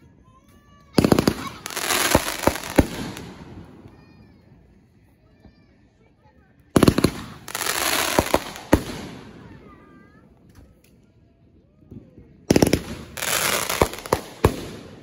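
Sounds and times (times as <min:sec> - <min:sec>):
firework crackling hiss: 0:01.0 - 0:04.0, 0:06.8 - 0:09.4, 0:12.5 - 0:15.0
firework sharp bangs: 0:01.0 - 0:04.0, 0:06.8 - 0:09.7, 0:12.5 - 0:15.0.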